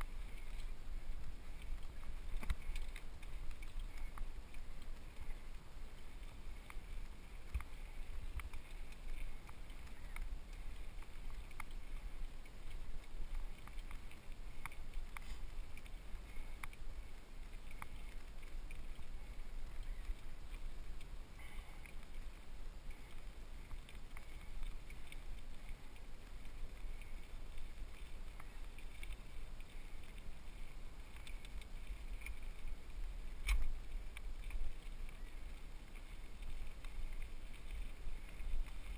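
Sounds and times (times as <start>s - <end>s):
wind and tyre noise: 0.0s - 38.9s.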